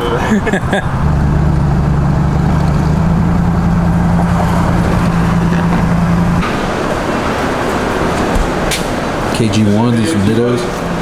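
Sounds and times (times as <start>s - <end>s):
car engine and road noise: 0.0s - 11.0s
dull background noise: 0.0s - 11.0s.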